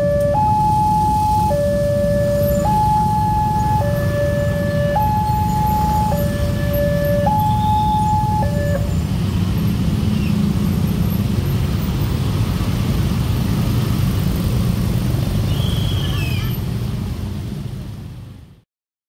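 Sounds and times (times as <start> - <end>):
level crossing alarm two-tone: 0.0 - 8.9.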